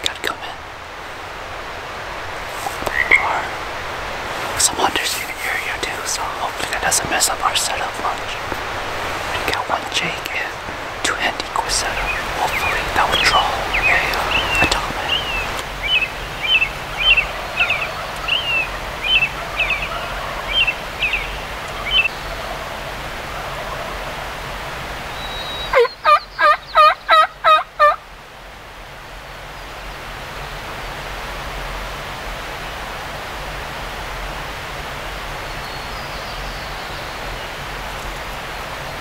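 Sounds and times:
turkey calling: 2.5s - 3.7s, 11.3s - 24.2s, 25.2s - 28.0s
small bird chirping: 11.7s - 22.4s.

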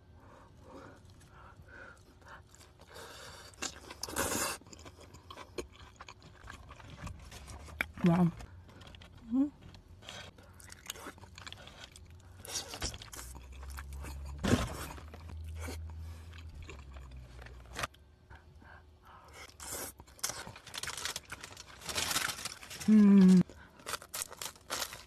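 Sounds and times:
chewing: 1.0s - 21.5s.

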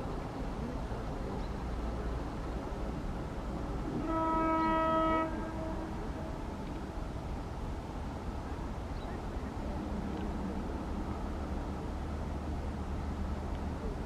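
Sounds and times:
locomotive horn blast: 4.0s - 6.3s.

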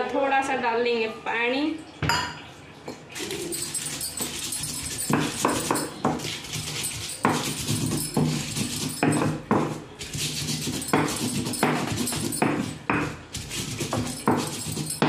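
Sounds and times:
grinding stone scraping on slab: 3.2s - 15.0s.

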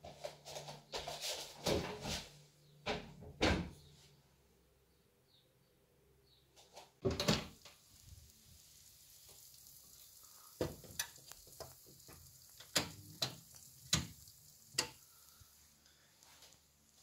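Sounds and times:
sizzling pops and crackles: 6.7s - 17.0s
hot oven hiss: 7.1s - 17.0s.

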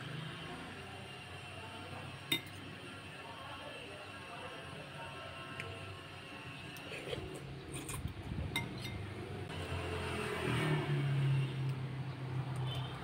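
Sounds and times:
engine drone: 9.0s - 13.0s.

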